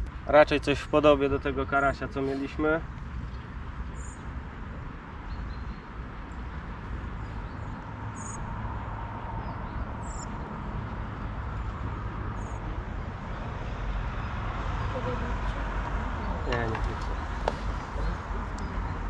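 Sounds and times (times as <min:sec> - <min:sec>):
outdoor background rumble and hiss: 0:00.0 - 0:19.0.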